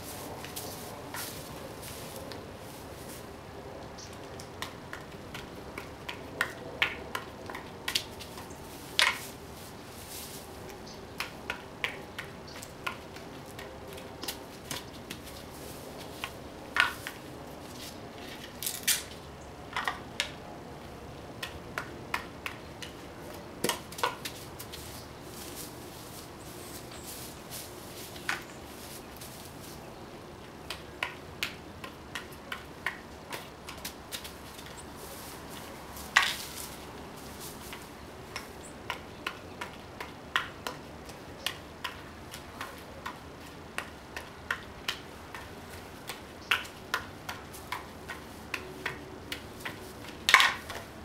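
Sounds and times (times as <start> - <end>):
juggling clubs clacking: 4.2 - 9.4, 10.3 - 20.4, 21.3 - 25.7, 30.4 - 51.0.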